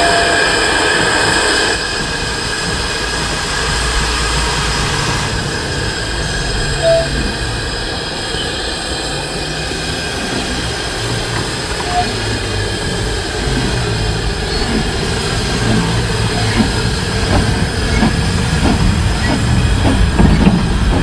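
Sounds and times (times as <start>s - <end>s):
steam locomotive hissing: 0.0s - 21.0s
short squeak: 6.8s - 7.3s.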